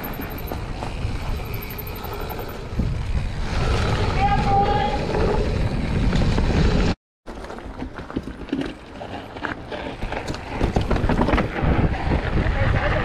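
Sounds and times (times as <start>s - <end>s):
wind on microphone: 10.5s - 13.0s.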